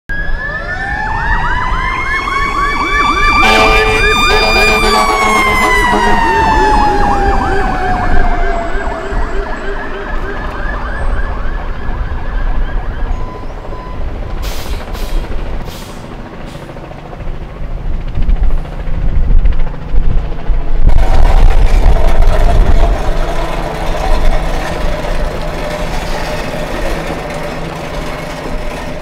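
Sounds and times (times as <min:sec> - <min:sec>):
fast yelping siren: 0:00.1 - 0:14.2
wailing siren: 0:00.1 - 0:14.4, 0:20.6 - 0:29.0
short horn blast: 0:03.4 - 0:06.4.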